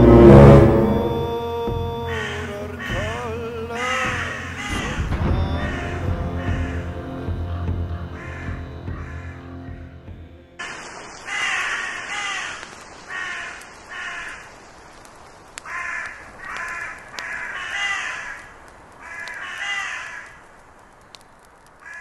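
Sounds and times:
crows cawing: 2.0s - 9.9s, 11.2s - 14.6s, 15.6s - 20.9s, 21.7s - 22.0s
steady background hiss: 10.6s - 22.0s.

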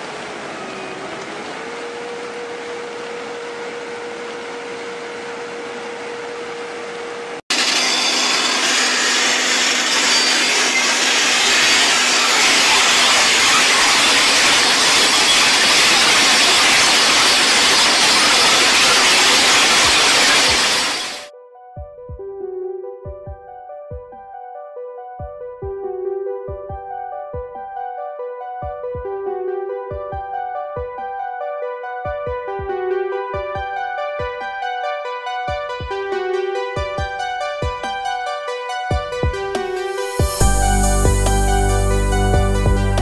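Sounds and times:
trencher engine running: 7.5s - 21.3s
trencher chain grinding stony ground: 7.6s - 21.2s.

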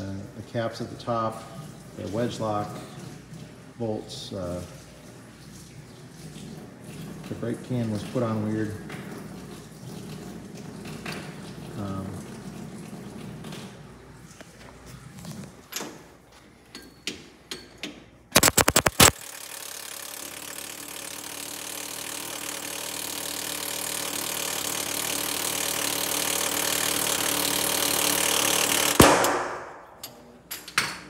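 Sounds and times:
pneumatic impact wrench: 18.3s - 29.8s.

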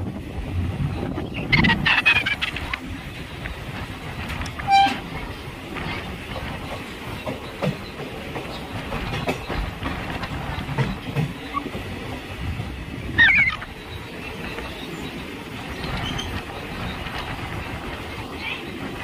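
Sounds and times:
train wheels rumbling: 0.0s - 19.0s
clicks and knocks of track: 2.5s - 12.8s, 13.6s - 19.0s
high-pitched squeak: 4.6s - 5.0s.

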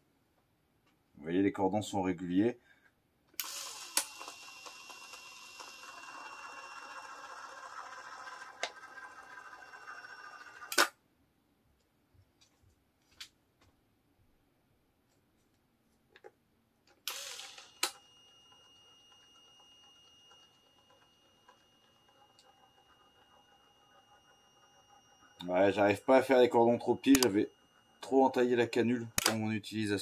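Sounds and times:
caulking gun motor whining: 3.4s - 10.9s, 17.0s - 29.6s
sharp click: 27.1s - 27.3s, 29.2s - 29.4s.

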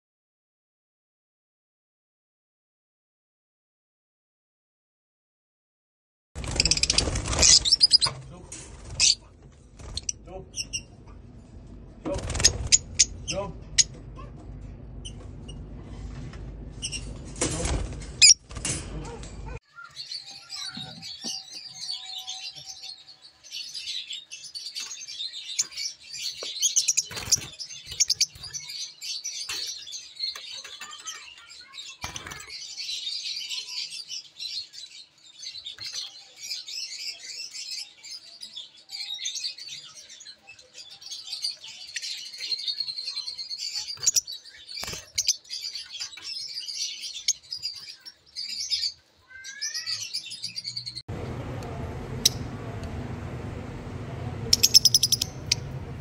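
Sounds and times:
lovebirds chattering: 6.4s - 14.4s, 19.0s - 34.8s, 35.4s - 56.0s
low hum: 8.3s - 18.2s, 51.1s - 56.0s.

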